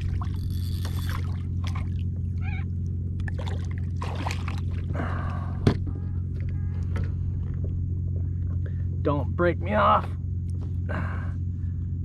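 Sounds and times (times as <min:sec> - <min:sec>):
water splashing and sloshing: 0:00.0 - 0:08.6
steady low hum: 0:00.0 - 0:12.0
fish thrashing at surface: 0:03.2 - 0:05.1.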